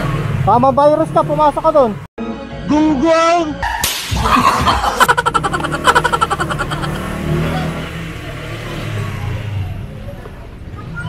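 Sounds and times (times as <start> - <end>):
motorcycle engine accelerating: 5.0 - 10.6.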